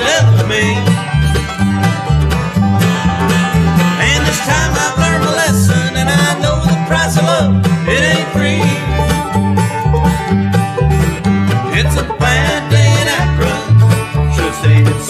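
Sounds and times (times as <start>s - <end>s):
acoustic guitar: 0.0s - 15.0s
banjo: 0.0s - 15.0s
fiddle: 0.0s - 15.0s
mandolin: 0.0s - 15.0s
upright bass: 0.0s - 15.0s.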